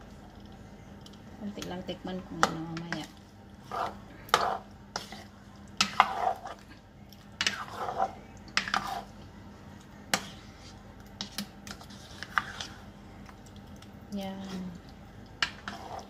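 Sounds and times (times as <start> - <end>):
steady low hum: 0.0 - 16.0
wet scraping: 10.2 - 12.8, 15.4 - 16.0.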